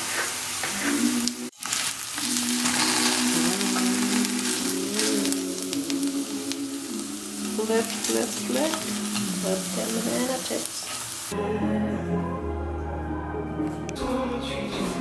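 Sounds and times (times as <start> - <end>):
slices sizzling in oil: 0.0 - 11.4
background music with singing: 0.6 - 1.5, 2.2 - 10.6, 11.3 - 15.0
spatula scraping pan: 2.2 - 5.4.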